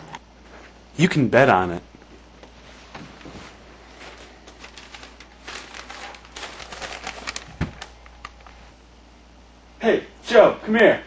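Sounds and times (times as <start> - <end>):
newspaper pages rustling: 2.8 - 8.7.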